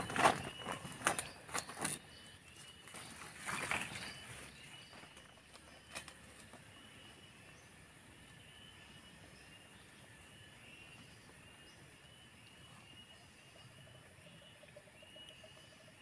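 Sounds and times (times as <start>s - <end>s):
rustling in leaf litter: 0.0s - 6.6s
cicadas droning: 0.0s - 16.0s.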